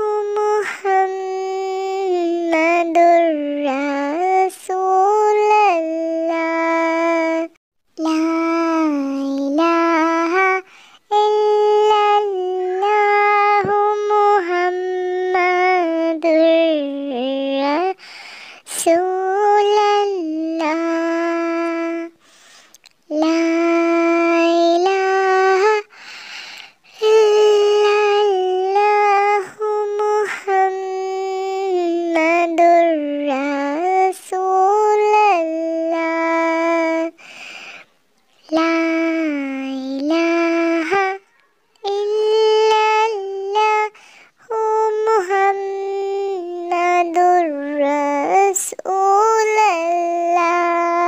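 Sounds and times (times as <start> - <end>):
person singing unaccompanied: 0.0 - 37.4, 38.2 - 51.0
singer breathing: 10.6 - 11.1, 18.0 - 18.7, 22.2 - 22.8, 25.9 - 26.9, 37.1 - 38.0, 43.9 - 44.4.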